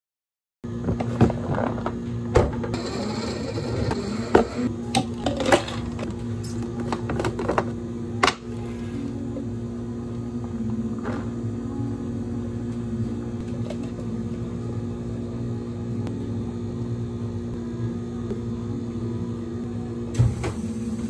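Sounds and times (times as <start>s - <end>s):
low machine hum: 0.7s - 21.0s.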